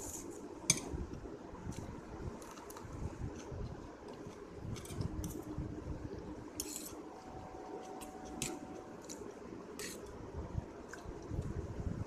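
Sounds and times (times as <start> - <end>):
metal fork scraping a plate: 6.6 - 7.0, 9.8 - 10.1.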